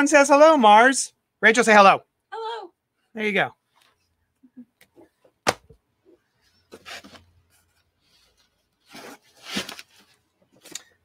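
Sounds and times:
paper and plastic rustling: 0:06.7 - 0:11.0.

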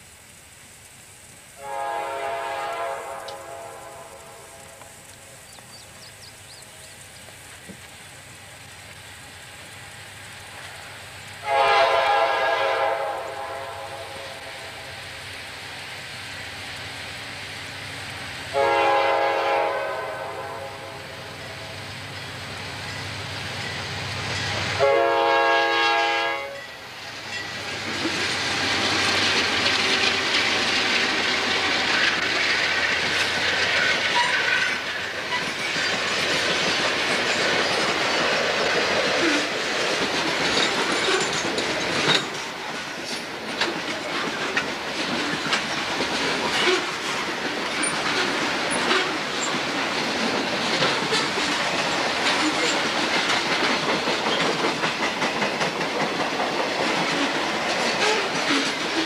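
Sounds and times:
rumble of wheels on rail: 0:00.0 - 0:59.0
train horn blasts: 0:01.6 - 0:05.0, 0:11.4 - 0:14.9, 0:18.5 - 0:21.4, 0:24.8 - 0:26.8
locomotives passing: 0:13.3 - 0:59.0.

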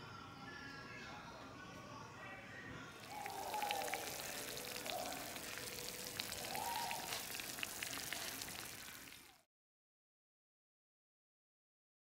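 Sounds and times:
cheese sizzling: 0:03.0 - 0:09.4.

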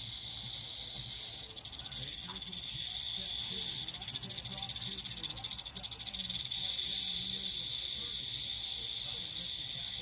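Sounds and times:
rattlesnake rattle buzzing: 0:00.0 - 0:10.0.

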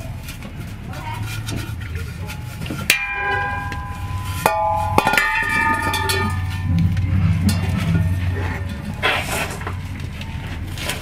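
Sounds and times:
metal can clanging on concrete: 0:02.9 - 0:09.8.

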